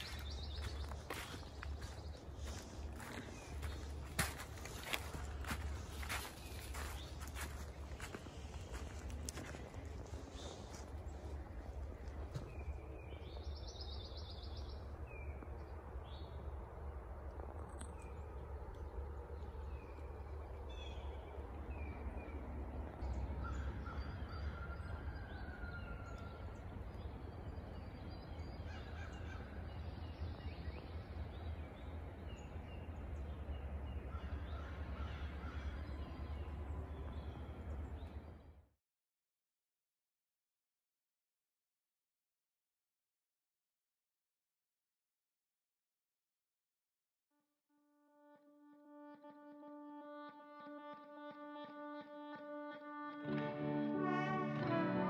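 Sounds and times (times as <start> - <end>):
steady low rumble: 0.0 - 25.1.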